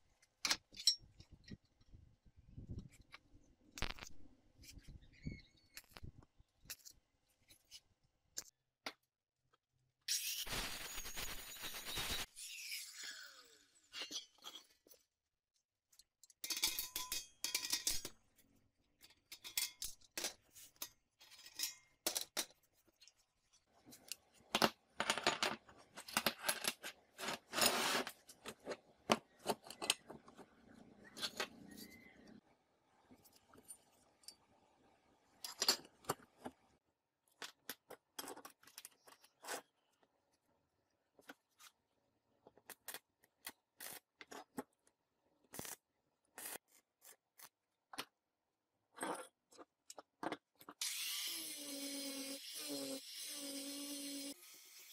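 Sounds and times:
arc welding crackle: 10.2s - 12.3s
steel pieces clinking on a workbench: 16.4s - 18.1s.

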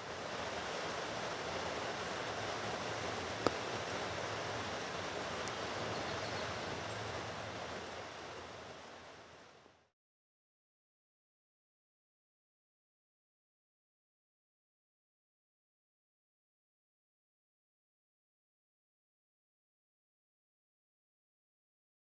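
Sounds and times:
steady background hiss: 0.0s - 9.9s.

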